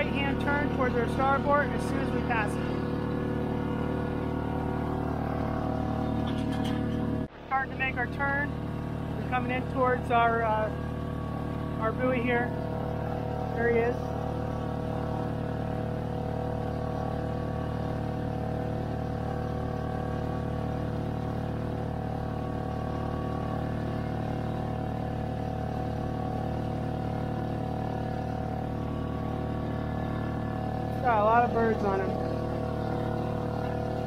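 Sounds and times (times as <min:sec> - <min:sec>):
boat engine droning: 0:00.0 - 0:34.0.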